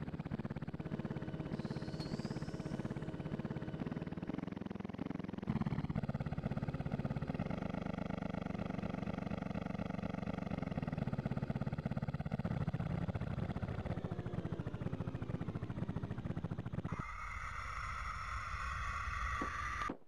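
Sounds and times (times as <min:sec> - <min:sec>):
cartoon droning engine with rotor chop: 0:00.0 - 0:20.0
high turbine whine: 0:00.8 - 0:04.4, 0:16.9 - 0:20.0.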